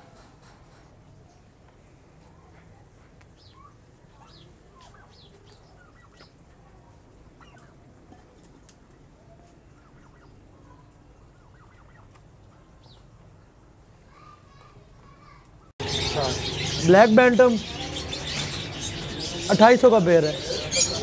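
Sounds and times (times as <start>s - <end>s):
turkeys clucking and chirping: 3.4s - 6.5s, 7.3s - 7.9s, 9.4s - 13.1s, 15.8s - 21.0s.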